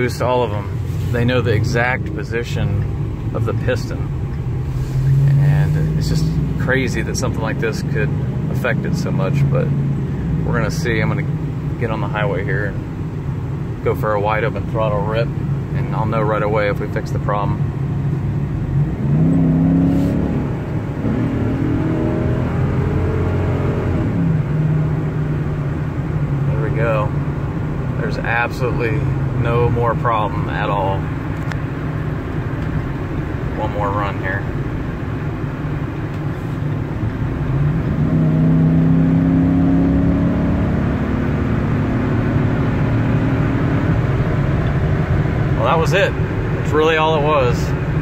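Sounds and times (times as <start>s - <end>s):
road rumble: 0.0s - 48.0s
truck engine accelerating hard: 14.6s - 48.0s.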